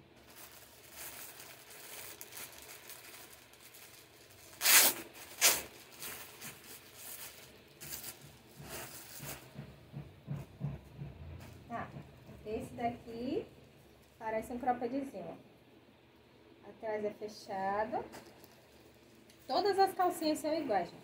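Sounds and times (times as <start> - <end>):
plastic bags rustling: 0.0 - 9.6, 18.1 - 20.3
plastic bag ripping open: 0.2 - 8.2.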